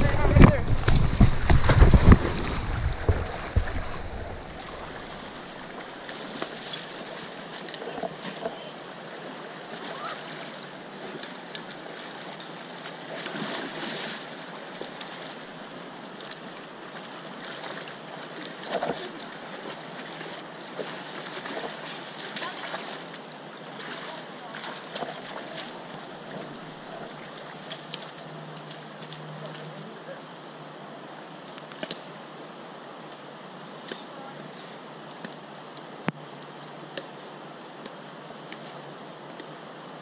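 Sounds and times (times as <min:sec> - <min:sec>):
water splashes: 0:00.0 - 0:30.2
river flowing over rocks: 0:00.0 - 0:40.0.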